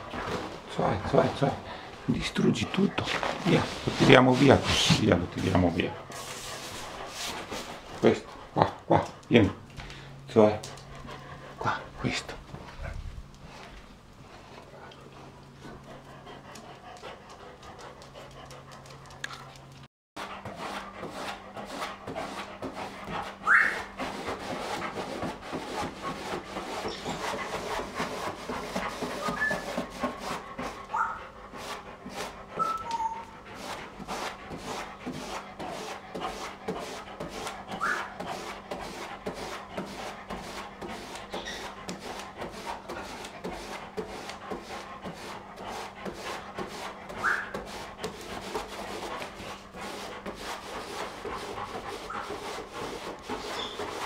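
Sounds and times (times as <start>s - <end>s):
dog panting: 0.0s - 54.0s
dog whimpering: 23.4s - 24.0s, 29.2s - 29.6s, 30.9s - 31.2s, 32.5s - 33.4s, 37.7s - 38.2s, 47.2s - 47.6s.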